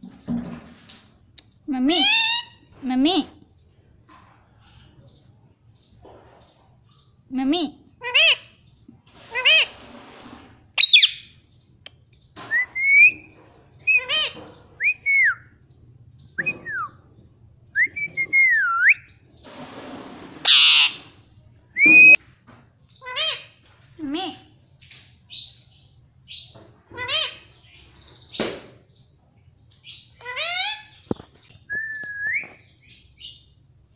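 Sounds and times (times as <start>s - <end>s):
parakeet squawking and whistling: 10.8s - 11.3s, 20.4s - 21.1s
parakeet harsh screech: 20.4s - 21.1s.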